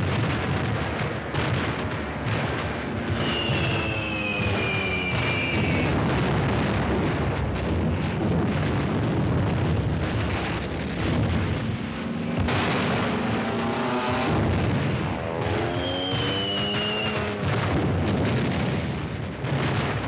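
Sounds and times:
anti-aircraft gunfire: 0:00.0 - 0:20.0
explosions: 0:00.0 - 0:20.0
aircraft engines droning: 0:11.6 - 0:17.4.

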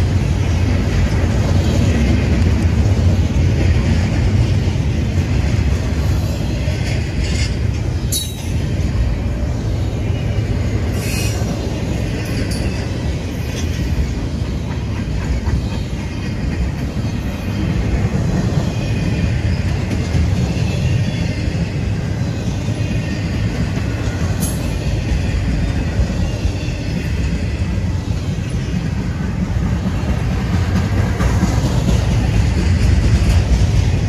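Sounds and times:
train wheels rumbling on rails: 0:00.0 - 0:34.0
high-pitched metallic sounds: 0:06.2 - 0:09.1.

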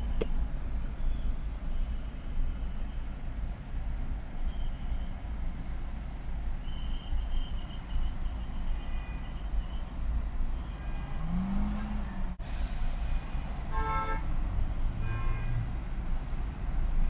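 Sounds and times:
heavy road traffic rumble: 0:00.0 - 0:17.0
vehicle engine revving: 0:11.0 - 0:12.4.

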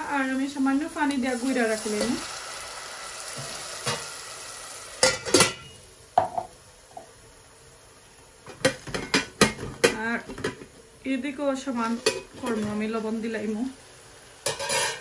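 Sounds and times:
onions sizzling in oil: 0:00.0 - 0:15.0
metal lid clanging onto pot: 0:14.5 - 0:15.0.

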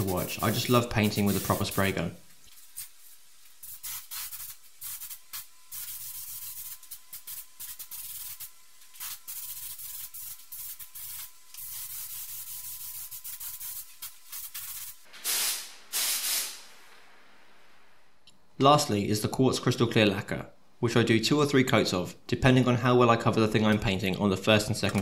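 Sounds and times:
paint spray gun hissing: 0:00.0 - 0:17.0.

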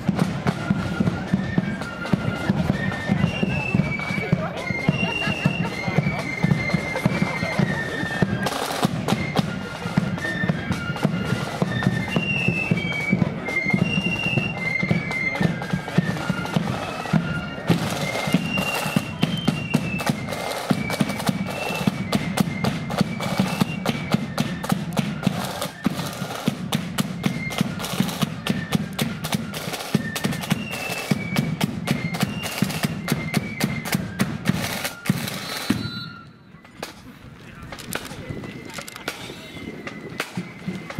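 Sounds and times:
flutes playing a tune: 0:00.0 - 0:40.9.

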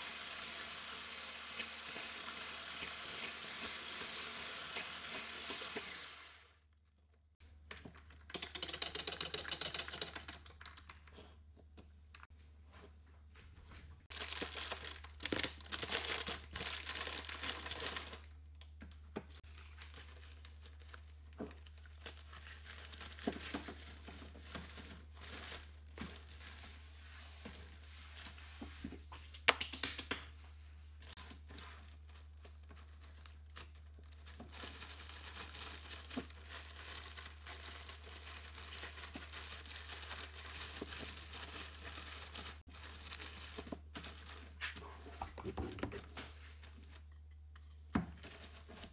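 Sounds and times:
plastic packet tearing and crinkling: 0:14.1 - 0:18.3, 0:32.0 - 0:44.4.

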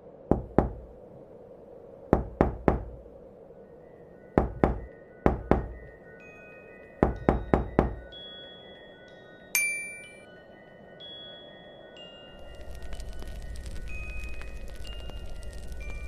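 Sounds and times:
low ambient drone: 0:00.0 - 0:16.0
ringing chime tones: 0:05.8 - 0:12.4.

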